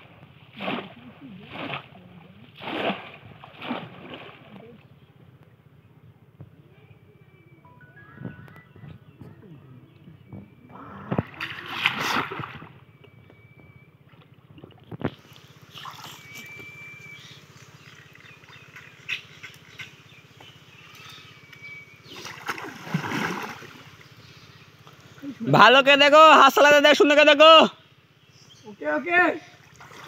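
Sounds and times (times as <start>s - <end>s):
water splashing and sloshing: 0.0s - 4.8s, 10.9s - 13.2s, 14.0s - 16.8s, 22.1s - 24.1s, 29.6s - 30.0s.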